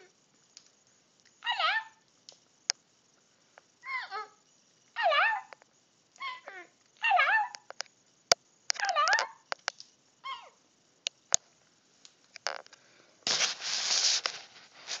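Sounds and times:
parrot whistled chatter: 0:01.4 - 0:02.0, 0:05.0 - 0:05.5, 0:06.2 - 0:07.6
sharp clicks: 0:07.5 - 0:10.0
loud rustling: 0:13.2 - 0:15.0.

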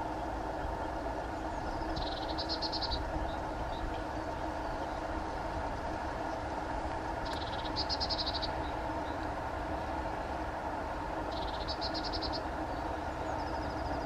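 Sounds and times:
low outdoor background hum: 0:00.0 - 0:14.0.

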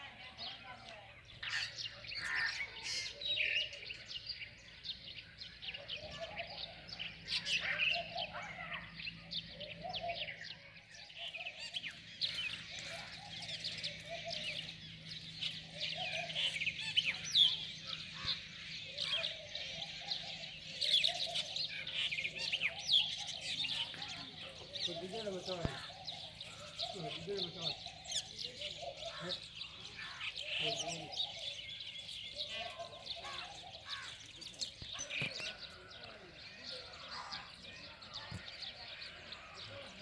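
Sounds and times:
small birds chirping: 0:00.0 - 0:40.0.

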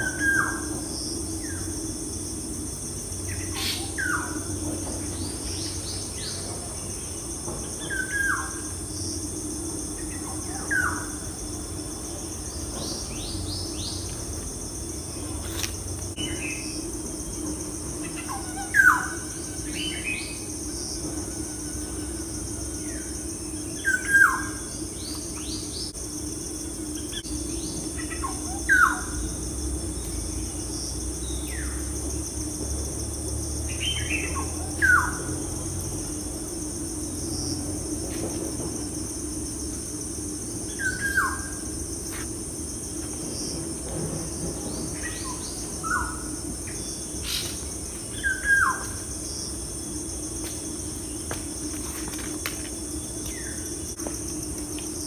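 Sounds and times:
high-pitched insect drone: 0:00.0 - 0:55.0.

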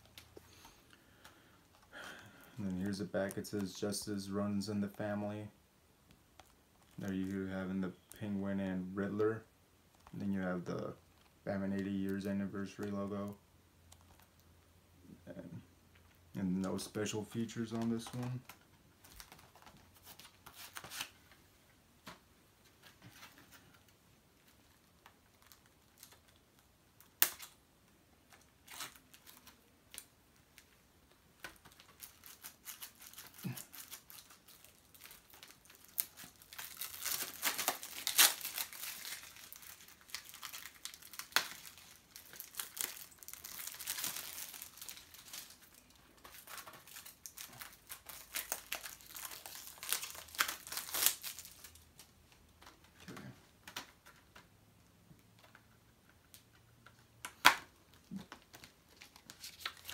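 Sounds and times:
plastic crinkling: 0:16.6 - 0:21.3, 0:22.8 - 0:27.6, 0:28.2 - 0:54.5, 0:55.4 - 0:59.9
plastic shrink wrap tearing: 0:24.8 - 0:27.6, 0:28.3 - 0:30.7, 0:31.4 - 0:52.4, 0:57.3 - 0:59.9.

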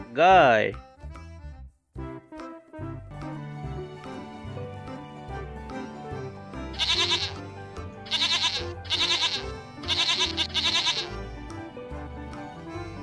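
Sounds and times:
background music: 0:00.0 - 0:13.0
goats bleating: 0:06.8 - 0:07.4, 0:08.1 - 0:11.2.

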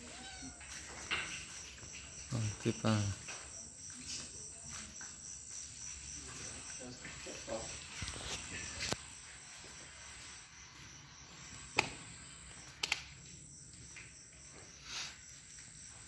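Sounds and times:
crickets chirring: 0:00.0 - 0:16.0
sharp clicks: 0:12.7 - 0:13.1.

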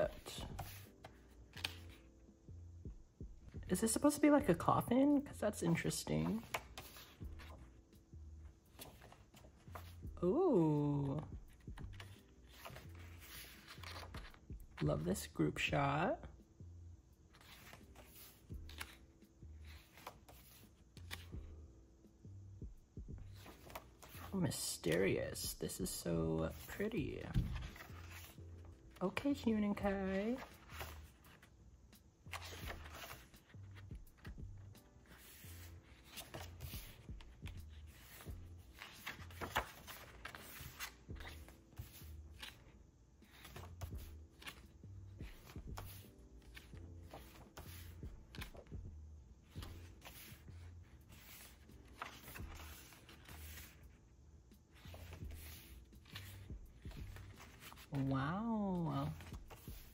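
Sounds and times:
paper pages rustling: 0:00.0 - 0:02.1, 0:05.7 - 0:07.8, 0:08.7 - 0:10.0, 0:11.0 - 0:14.8, 0:17.3 - 0:21.4, 0:23.3 - 0:25.0, 0:26.4 - 0:31.5, 0:32.3 - 0:34.4, 0:35.0 - 0:48.8, 0:49.4 - 0:54.0, 0:54.7 - 0:59.9
quiet lo-fi music: 0:00.0 - 0:59.9.

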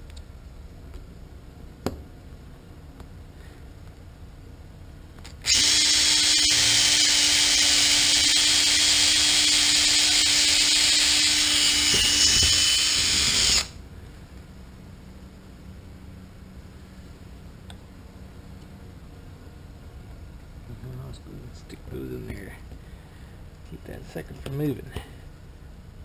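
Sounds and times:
cordless drill drilling: 0:05.4 - 0:13.8.

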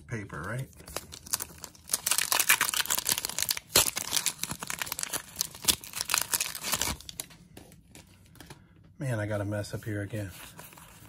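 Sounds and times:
foil wrapper tearing and crinkling: 0:00.8 - 0:07.3.

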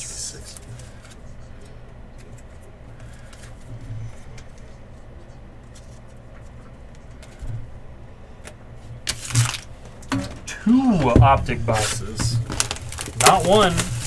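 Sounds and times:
low steady hum: 0:00.0 - 0:14.0
trading cards rustling and tapping: 0:00.5 - 0:05.0, 0:05.6 - 0:07.6, 0:11.7 - 0:14.0.

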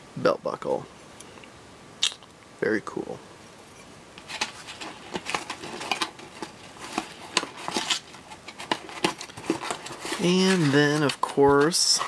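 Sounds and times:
hands handling items in a box: 0:04.2 - 0:12.0.

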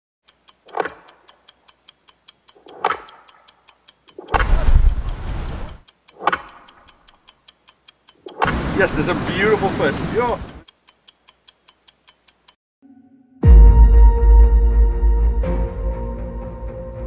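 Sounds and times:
clock-like ticking: 0:00.2 - 0:12.6
rushing wind and surf: 0:04.4 - 0:05.8, 0:08.4 - 0:10.6.

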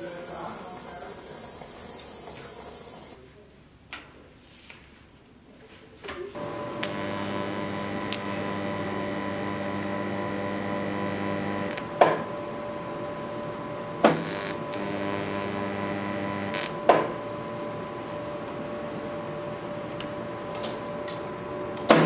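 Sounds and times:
welding arc buzz: 0:00.0 - 0:03.2, 0:06.4 - 0:12.2, 0:14.0 - 0:17.2
sharp welding cracks: 0:06.7 - 0:11.9, 0:14.1 - 0:16.8.

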